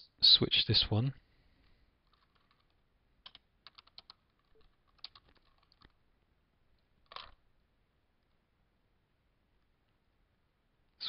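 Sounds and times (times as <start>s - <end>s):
keyboard typing: 2.1s - 6.0s.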